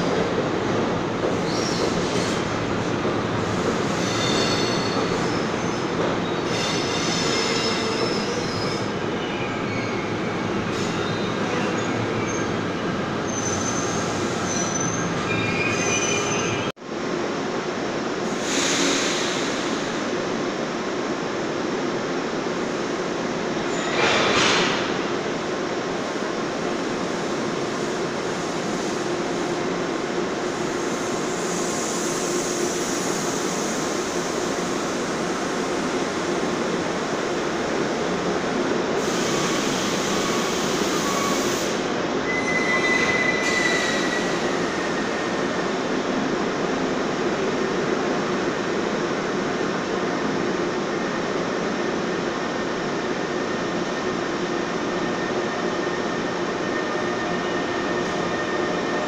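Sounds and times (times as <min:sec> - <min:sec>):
train wheels rumbling on rails: 0:00.0 - 0:16.7
high wheel squeal: 0:04.0 - 0:12.5, 0:13.3 - 0:16.7, 0:39.3 - 0:41.7, 0:42.3 - 0:45.3.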